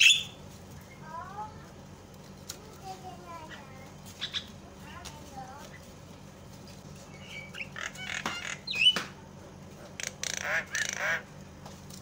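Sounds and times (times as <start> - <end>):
raspy bird calls: 0.0 - 1.0, 3.4 - 4.6, 7.0 - 9.2, 9.9 - 11.4.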